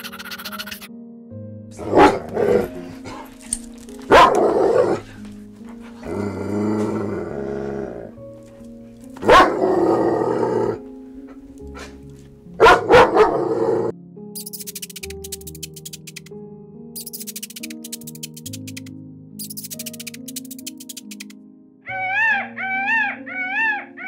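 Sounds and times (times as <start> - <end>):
light background music: 0.0 - 24.0
dogs barking: 1.8 - 6.2, 9.1 - 10.8, 12.6 - 13.9.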